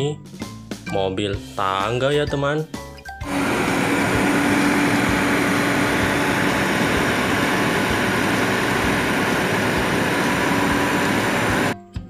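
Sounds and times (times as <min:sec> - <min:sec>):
low hum: 0:03.3 - 0:11.8
truck engine running: 0:03.3 - 0:11.8.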